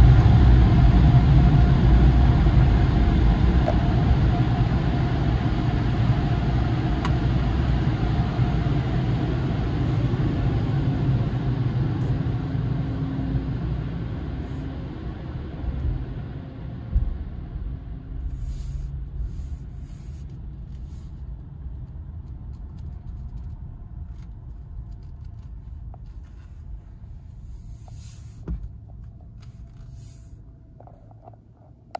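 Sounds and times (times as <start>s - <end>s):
car wash dryers blowing: 0.0s - 21.1s
car low rumble: 0.0s - 31.9s
thump: 28.4s - 28.7s.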